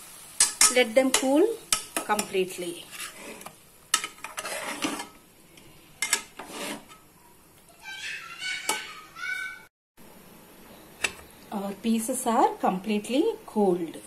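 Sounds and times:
ladle stirring in metal pot: 0.4 - 7.1.

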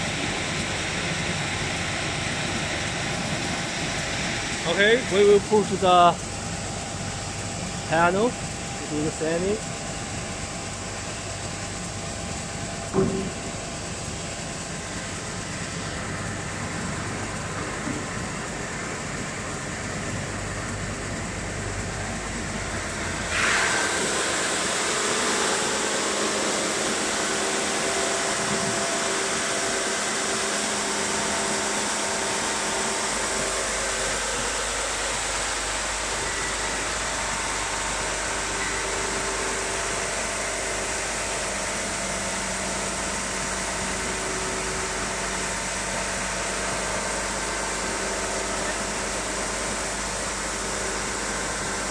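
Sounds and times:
knock: 13.0 - 13.4
sanding machine running: 22.4 - 51.9.

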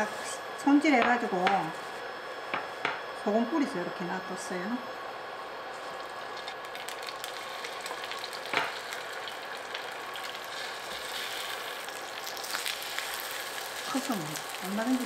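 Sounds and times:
fish sizzling in hot oil: 5.7 - 15.0.

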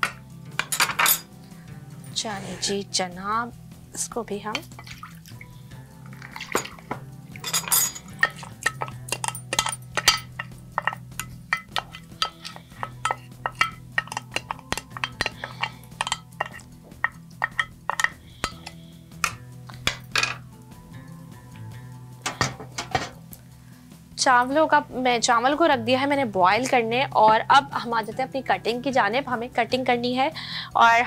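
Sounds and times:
spoon clinking and scraping dish: 0.0 - 1.3, 6.2 - 20.5, 21.5 - 23.2
water splashing into pot: 4.5 - 5.5, 6.1 - 11.0.

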